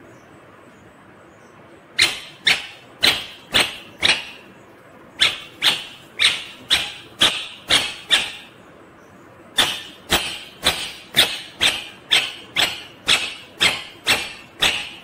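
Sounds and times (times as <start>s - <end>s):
parrot giving sharp calls: 2.0s - 4.5s, 5.2s - 8.6s, 9.6s - 15.0s.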